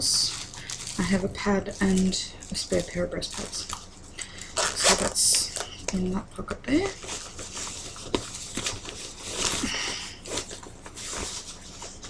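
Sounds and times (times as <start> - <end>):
fabric bag rustling: 6.8 - 12.0.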